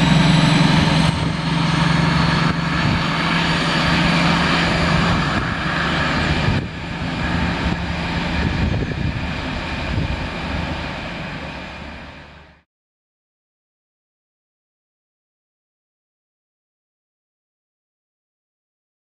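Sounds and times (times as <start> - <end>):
diesel locomotive engine drone: 0.0 - 12.7.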